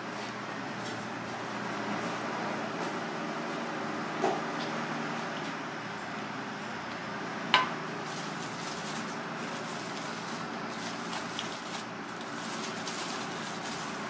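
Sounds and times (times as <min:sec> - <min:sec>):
aluminium foil crinkling: 0:08.0 - 0:14.0.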